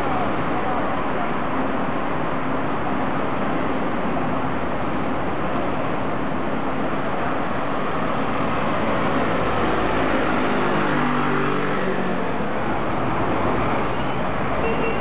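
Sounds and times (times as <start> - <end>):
road traffic noise: 0.0 - 15.0
motor vehicle passing by: 8.4 - 12.4.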